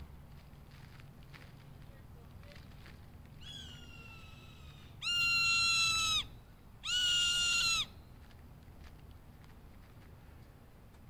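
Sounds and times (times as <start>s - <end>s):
hawk screeching: 3.4s - 7.9s.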